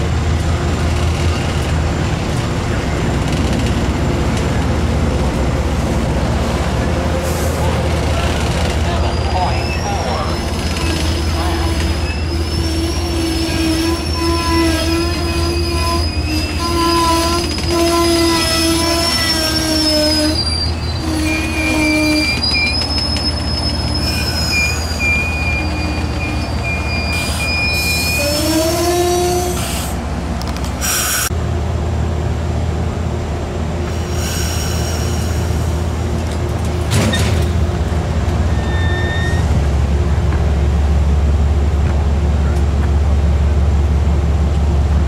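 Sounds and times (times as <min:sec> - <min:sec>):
low train rumble: 0:00.0 - 0:45.0
train wheels squealing: 0:09.0 - 0:29.9, 0:38.4 - 0:39.6.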